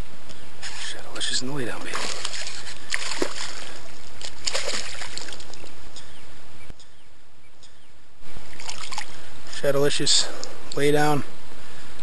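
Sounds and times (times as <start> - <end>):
steady water noise: 0.0 - 6.5, 8.2 - 12.0
fish splashing at the surface: 1.9 - 5.7, 8.5 - 9.2.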